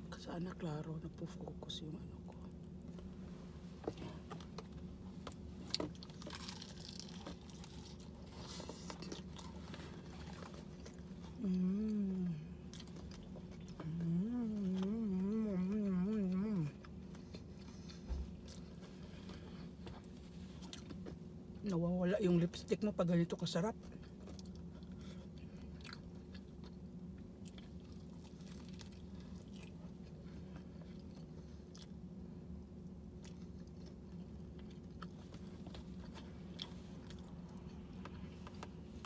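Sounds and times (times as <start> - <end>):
chewing crispy chicken: 4.0 - 21.6, 23.7 - 39.0
person humming mmm: 11.4 - 12.5, 13.8 - 16.7.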